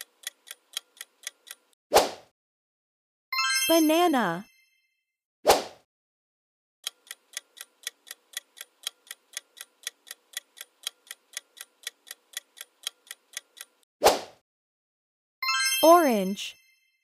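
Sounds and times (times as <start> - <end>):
clock ticking: 0.0 - 1.8, 6.8 - 13.9.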